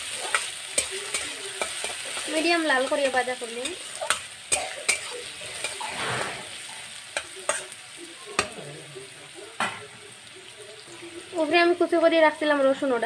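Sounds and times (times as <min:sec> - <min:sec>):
onion sizzling in oil: 0:00.0 - 0:13.0
metal spatula scraping pan: 0:00.1 - 0:07.8
spatula tapping pan side: 0:00.3 - 0:02.3, 0:08.4 - 0:08.6.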